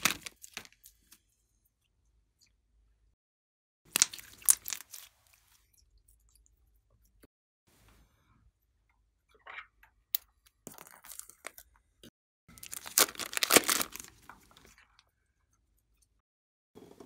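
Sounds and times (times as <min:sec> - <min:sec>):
plastic bag crinkling: 0:00.0 - 0:00.9, 0:12.6 - 0:14.8
clay squishing: 0:03.9 - 0:08.0.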